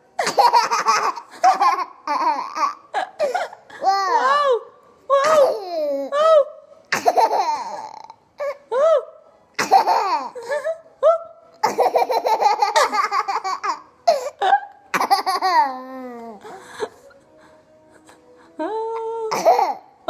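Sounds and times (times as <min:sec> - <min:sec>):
toddler laughing: 0:07.0 - 0:08.6, 0:09.6 - 0:10.8, 0:11.6 - 0:14.4, 0:15.0 - 0:16.6.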